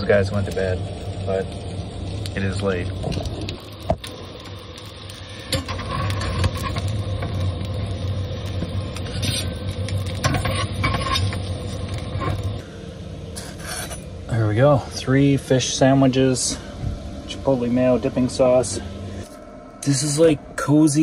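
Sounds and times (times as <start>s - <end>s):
sandwiches frying in pan: 0.0s - 12.6s
camp stove low hum: 0.0s - 21.0s
utensil clinking and scraping pan: 8.9s - 12.5s.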